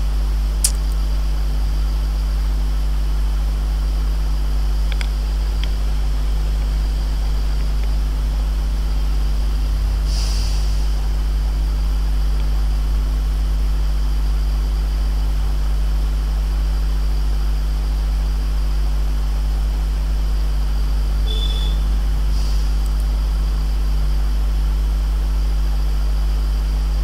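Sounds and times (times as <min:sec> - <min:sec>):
low electrical hum: 0:00.0 - 0:27.0
hiss: 0:09.8 - 0:12.1, 0:21.3 - 0:23.6.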